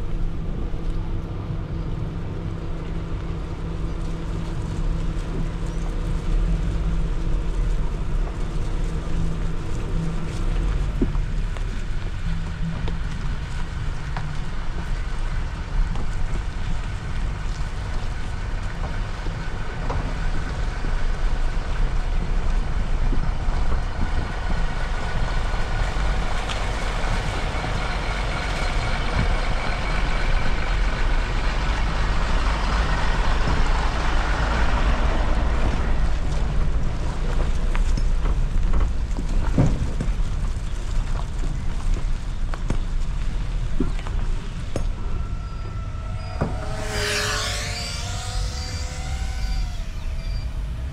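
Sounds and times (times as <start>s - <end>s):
engine rumbling: 0.0s - 50.9s
faint whine: 43.9s - 50.9s.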